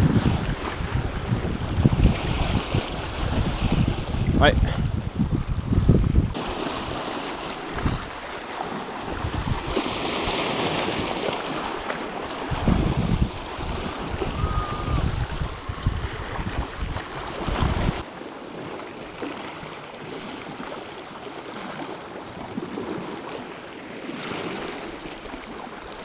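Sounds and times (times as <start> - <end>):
wind rumbling on microphone: 0.0 - 18.8
sea waves washing over rocks: 0.0 - 26.0.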